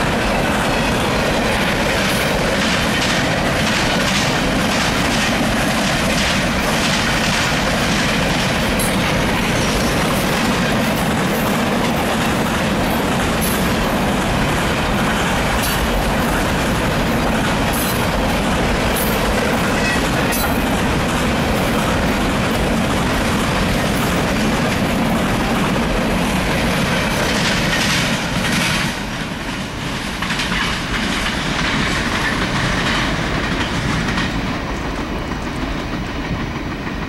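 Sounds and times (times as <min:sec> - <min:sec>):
freight train wheels clacking: 0:00.0 - 0:37.0.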